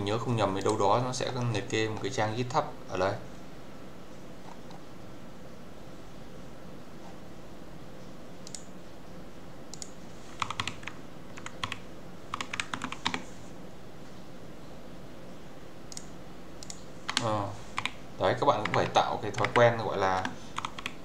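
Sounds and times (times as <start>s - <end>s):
low steady hum: 0.0s - 21.0s
typing on computer keyboard: 9.8s - 13.2s, 16.0s - 21.0s.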